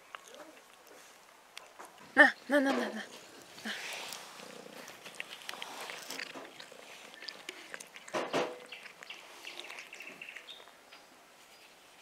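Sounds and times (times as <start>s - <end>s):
cat chewing food: 0.0s - 2.2s, 3.1s - 10.8s
birds chirping: 6.6s - 11.8s.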